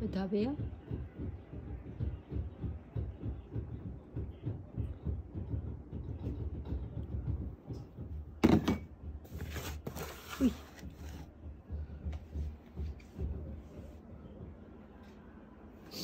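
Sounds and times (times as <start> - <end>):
rustling and handling noise: 7.8 - 15.3.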